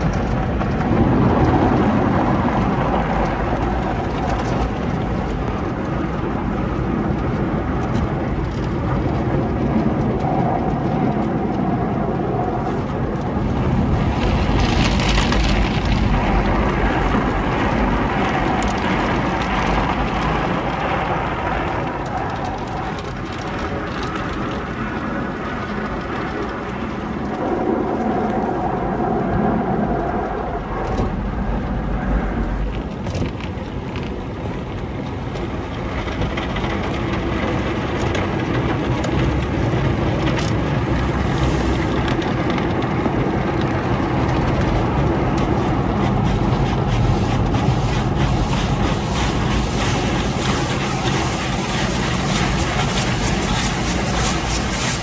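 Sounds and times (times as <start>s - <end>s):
car wash machinery noise: 0.0s - 55.0s
water spraying: 41.0s - 42.1s, 44.7s - 55.0s
cloth strips sweeping over car: 45.4s - 55.0s.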